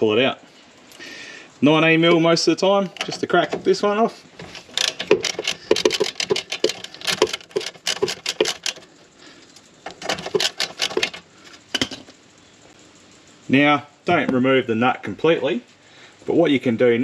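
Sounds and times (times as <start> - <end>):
ratchet clicking: 4.5 - 8.9, 9.8 - 12.0.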